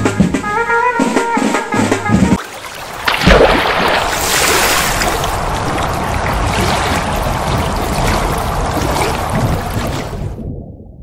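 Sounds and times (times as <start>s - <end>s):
water splashing and pouring: 2.4s - 10.6s.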